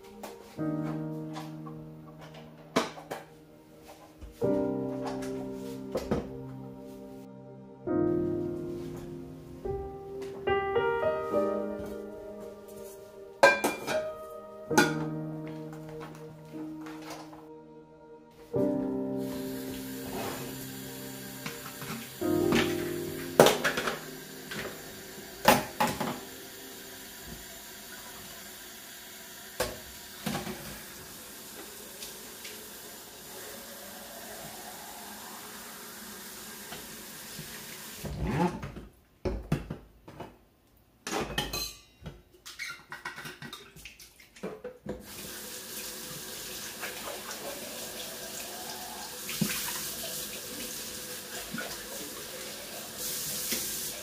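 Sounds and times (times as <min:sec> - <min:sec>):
knocks and clinks at sink: 0:13.4 - 0:14.1
faucet running into container: 0:45.0 - 0:54.0.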